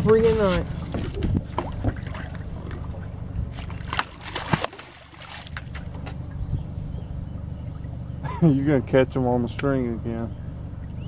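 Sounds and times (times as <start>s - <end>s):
low hum: 0.0s - 11.0s
fish splashing in water: 0.6s - 6.4s.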